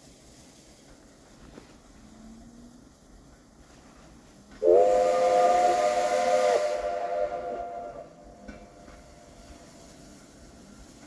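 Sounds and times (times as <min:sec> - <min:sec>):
steam hissing: 0:00.0 - 0:11.0
steam locomotive whistle: 0:04.6 - 0:09.4.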